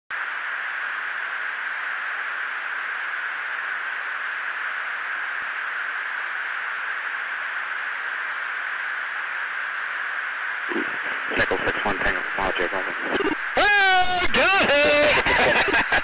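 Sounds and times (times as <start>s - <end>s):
intercom hiss: 10.6s - 16.0s.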